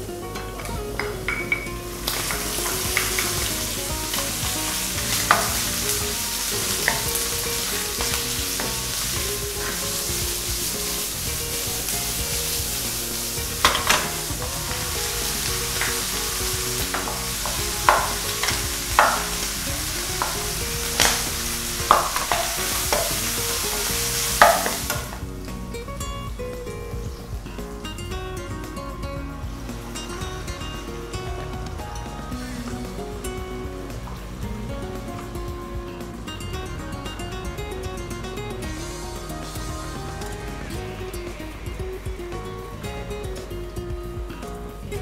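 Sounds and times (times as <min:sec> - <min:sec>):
bacon and onion sizzling in pan: 0:00.0 - 0:45.0
spatula knocking on pan: 0:01.0 - 0:10.7, 0:13.4 - 0:25.2.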